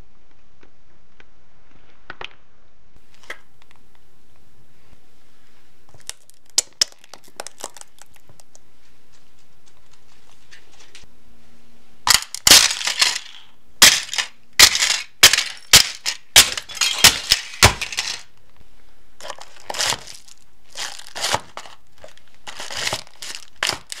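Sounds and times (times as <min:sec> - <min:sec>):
plastic toy cracking underfoot: 0:05.9 - 0:08.6, 0:12.1 - 0:18.3, 0:19.2 - 0:24.0
paper box crunching underfoot: 0:19.2 - 0:24.0.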